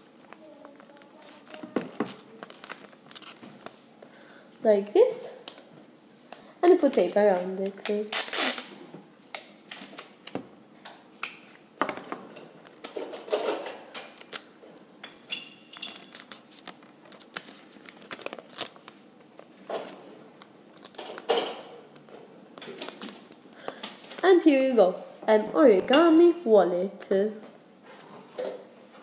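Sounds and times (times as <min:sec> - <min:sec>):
sticky tape tearing and crinkling: 0:00.3 - 0:03.8, 0:07.7 - 0:10.3, 0:15.9 - 0:20.0.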